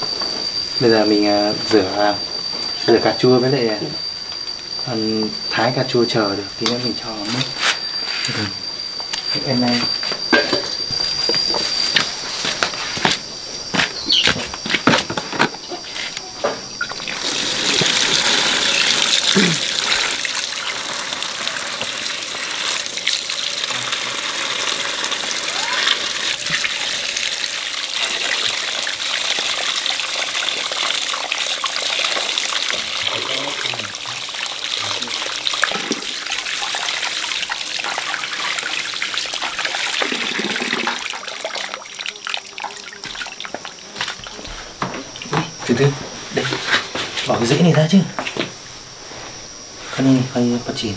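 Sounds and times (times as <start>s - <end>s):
water running from a tap: 16.8s - 45.5s
water splashing into plastic basin: 16.8s - 45.5s.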